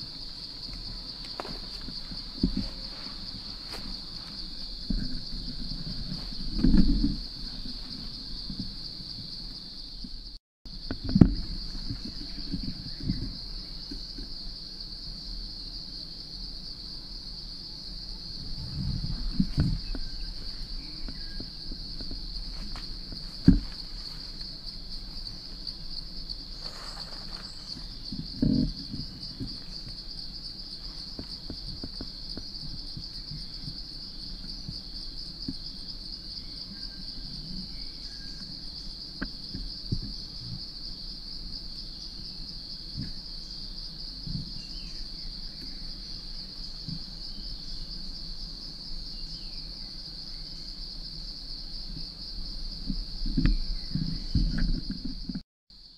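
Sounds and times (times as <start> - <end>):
forest insects chorus: 0.0 - 55.9
dull thumps and rustles: 0.6 - 8.8, 18.5 - 24.6.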